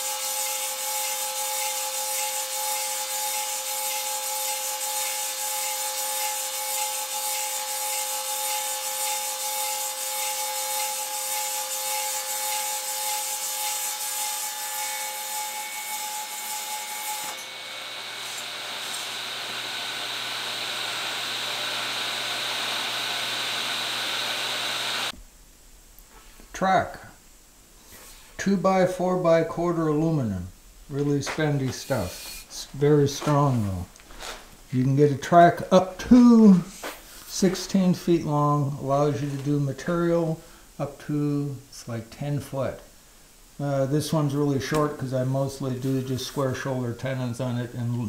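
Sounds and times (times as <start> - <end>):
table saw cutting wood: 0.0 - 25.1, 31.8 - 32.5.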